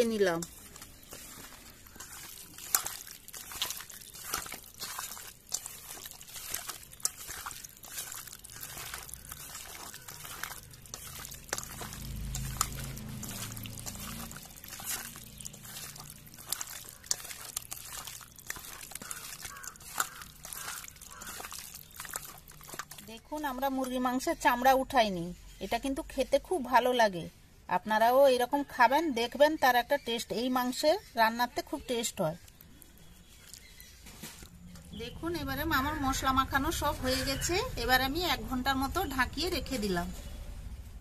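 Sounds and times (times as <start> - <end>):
raw chicken squelching and slapping: 0.0 - 24.4, 31.8 - 38.1.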